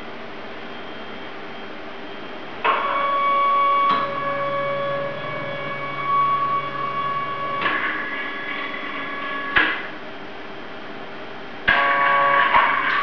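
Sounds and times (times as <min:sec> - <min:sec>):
robot arm motors whining: 0:02.7 - 0:09.9
low motor hum: 0:02.7 - 0:10.1.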